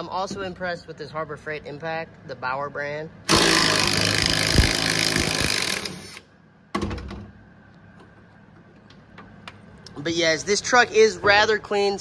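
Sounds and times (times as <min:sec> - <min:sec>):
impact wrench rattling: 0:03.3 - 0:06.2.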